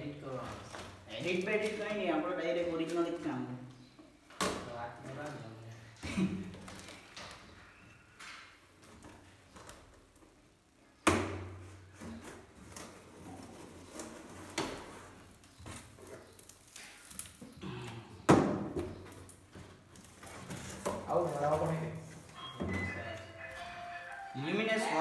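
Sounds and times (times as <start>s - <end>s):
cardboard scraping and rustling: 11.8s - 16.4s, 19.5s - 22.3s.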